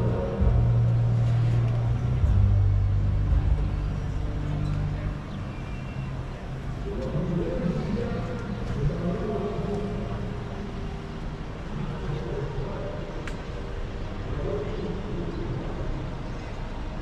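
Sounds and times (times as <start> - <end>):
distant traffic hum: 0.0 - 17.0
faint indistinct voices: 0.0 - 17.0.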